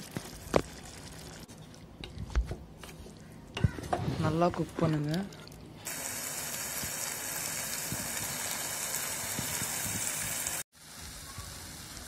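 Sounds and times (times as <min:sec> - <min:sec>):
chicken sizzling in a pan: 0:05.9 - 0:12.0.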